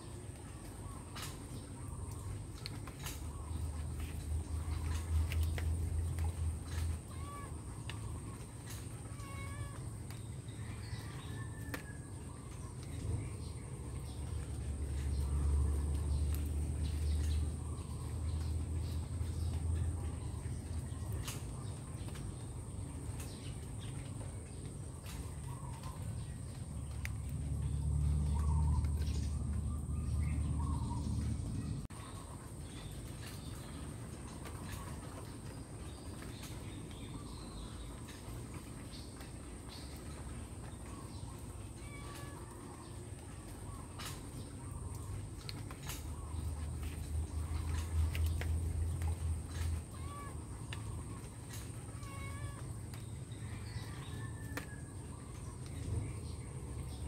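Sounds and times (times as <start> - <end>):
faint bird calls: 0.6 - 19.6, 40.8 - 56.1.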